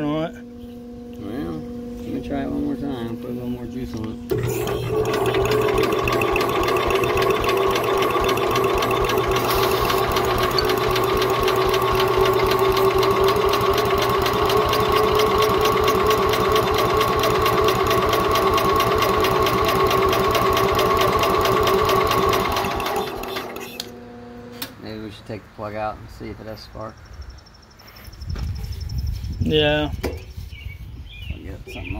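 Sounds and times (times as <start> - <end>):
electric starter cranking engine: 4.0 - 24.0.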